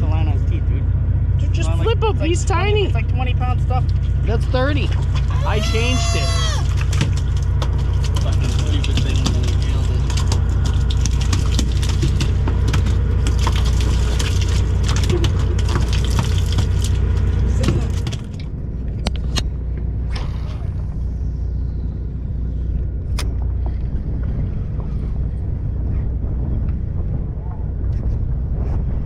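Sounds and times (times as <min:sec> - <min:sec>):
boat engine idling: 0:00.0 - 0:27.9.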